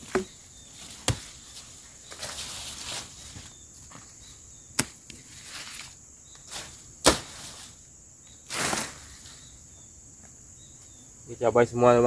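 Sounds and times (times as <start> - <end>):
high insect drone: 0.0 - 12.0
machete chopping weeds: 0.9 - 1.4, 4.8 - 5.2, 6.5 - 7.6
swish of cut vegetation: 8.5 - 9.1.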